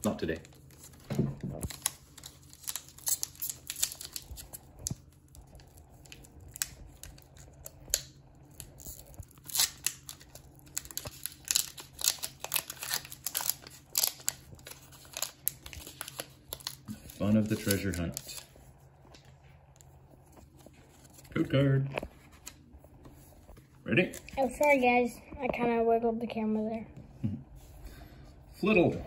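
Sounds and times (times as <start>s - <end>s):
foil pack crinkling and tearing: 0.0s - 18.6s.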